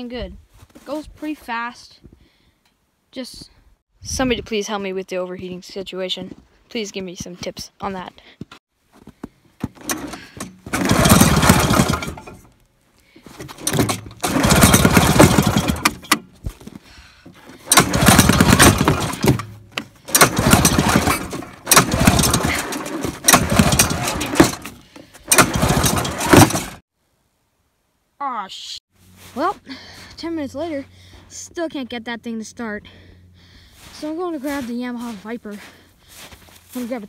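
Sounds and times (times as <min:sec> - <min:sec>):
snowmobile engine cranking: 0:09.6 - 0:26.8.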